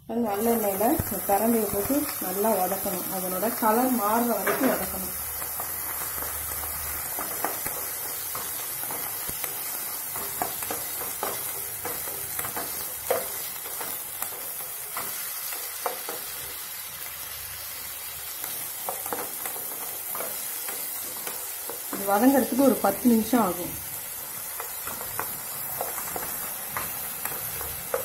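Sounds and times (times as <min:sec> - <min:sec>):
stems sizzling in oil: 0:00.0 - 0:28.0
spatula scraping and tapping pan: 0:03.8 - 0:16.5, 0:18.4 - 0:22.6, 0:24.3 - 0:28.0.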